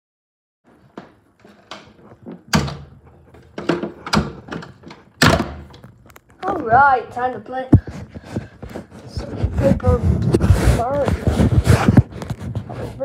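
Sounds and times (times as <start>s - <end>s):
door knocks and thuds: 3.5s - 5.8s.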